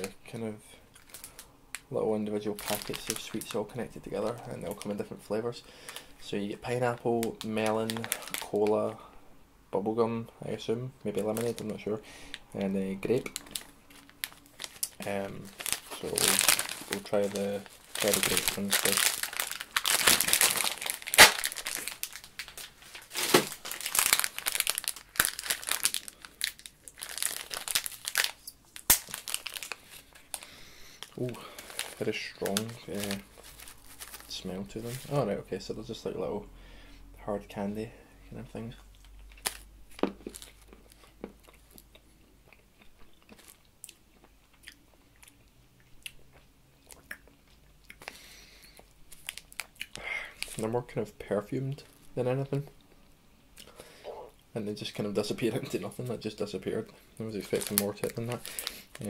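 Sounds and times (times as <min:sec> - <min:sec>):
sweet packet crinkling: 0:00.9 - 0:08.9, 0:11.1 - 0:36.0, 0:39.0 - 0:42.0, 0:43.1 - 0:43.7, 0:47.9 - 0:52.7, 0:54.8 - 0:59.0
person chewing hard candies: 0:13.2 - 0:28.3, 0:38.9 - 0:50.6.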